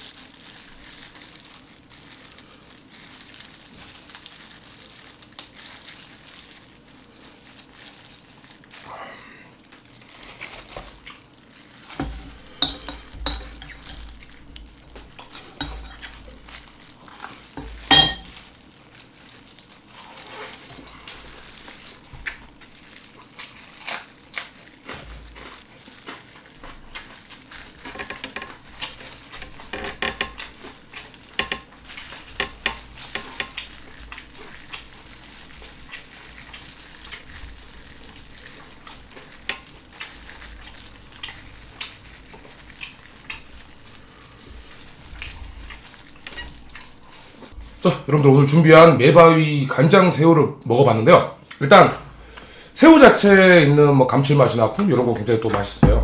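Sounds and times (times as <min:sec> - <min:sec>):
wet chewing and smacking: 0:13.0 - 0:47.8.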